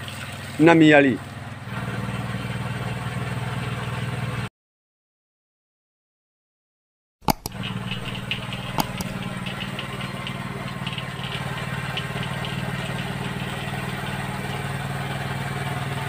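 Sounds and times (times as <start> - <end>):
sharp click: 7.2 - 9.7
motorcycle engine idling: 7.3 - 16.0.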